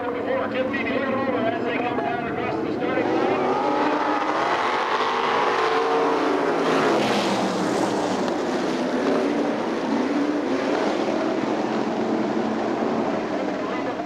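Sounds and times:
race car engines passing: 0:00.0 - 0:14.0.

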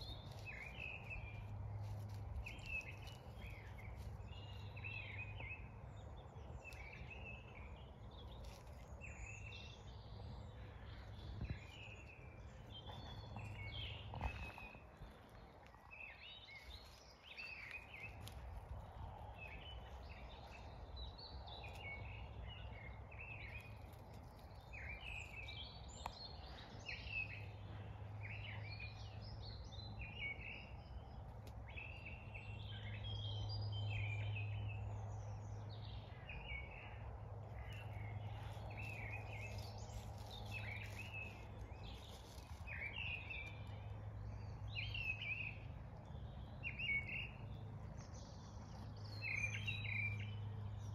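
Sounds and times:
birds chirping and warbling: 0:00.0 - 0:50.9.

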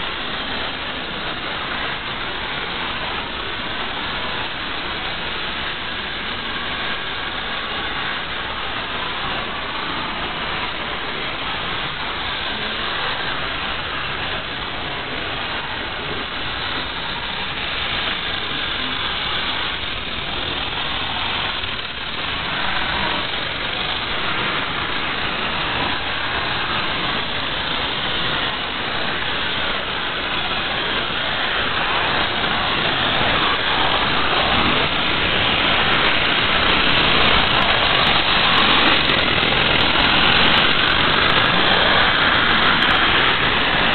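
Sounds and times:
toy train motors whirring: 0:15.1 - 0:43.9.

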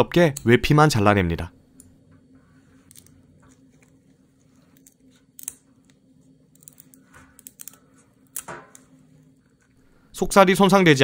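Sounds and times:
low steady hum: 0:00.0 - 0:11.0
scissors snipping: 0:04.8 - 0:06.0.

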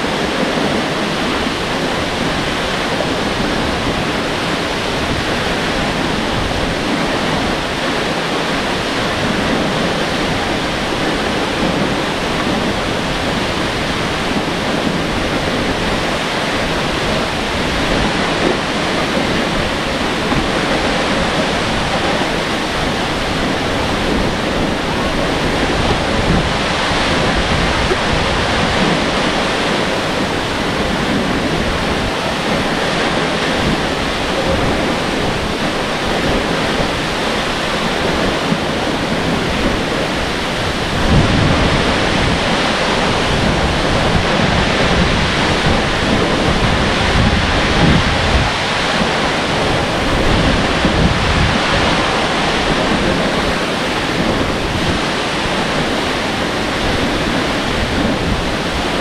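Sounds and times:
waterfall rushing: 0:00.0 - 0:59.0.

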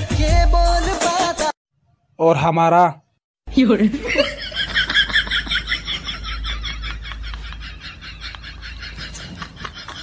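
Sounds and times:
high-pitched cackling laugh: 0:04.0 - 0:10.0.

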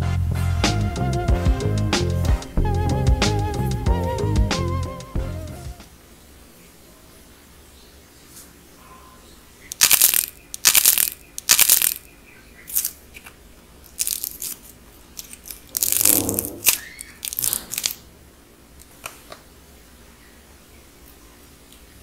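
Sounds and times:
dried clay cracking and crunching: 0:09.7 - 0:18.0.

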